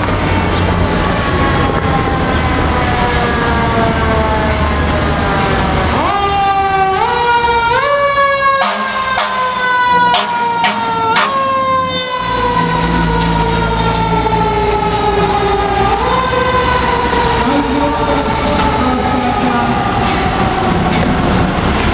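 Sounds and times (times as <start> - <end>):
fire engine siren wailing: 0.0 - 21.9
truck engine rumbling: 0.0 - 21.9
short sharp horn blasts: 8.6 - 9.4, 10.1 - 11.4.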